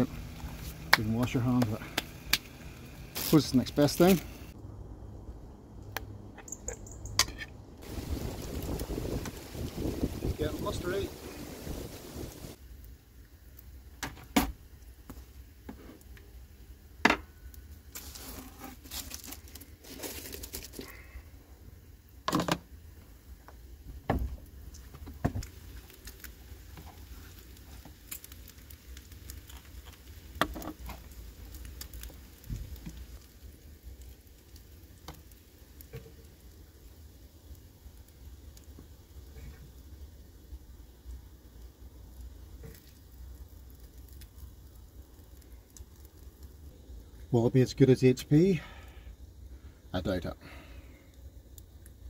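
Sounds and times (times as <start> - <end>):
crinkling rustle of handling: 0.0 - 4.6, 17.6 - 21.2, 24.4 - 39.8, 42.0 - 48.6.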